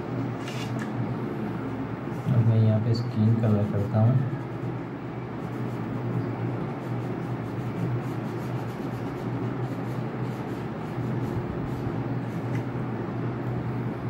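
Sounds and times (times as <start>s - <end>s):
steady low hum: 0.0s - 14.0s
wax crayon scratching on paper: 5.4s - 6.1s, 6.7s - 12.6s.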